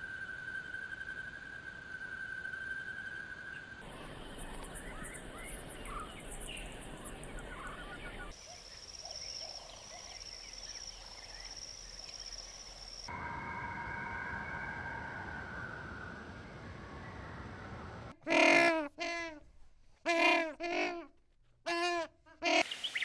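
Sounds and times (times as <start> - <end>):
steady high tone: 13.1 - 18.1.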